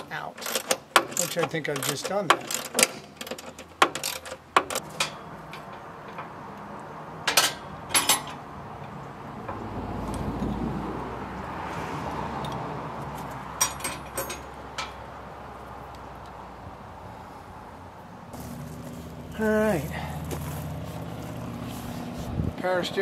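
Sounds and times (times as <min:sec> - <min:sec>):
metal tools clinking: 0:00.3 - 0:06.3, 0:07.3 - 0:08.4, 0:13.6 - 0:15.0.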